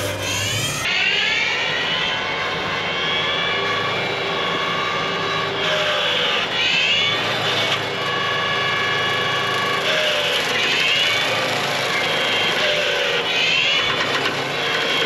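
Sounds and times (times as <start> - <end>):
brush cutter head whining: 0.0 - 0.9
tractor diesel engine: 0.0 - 15.0.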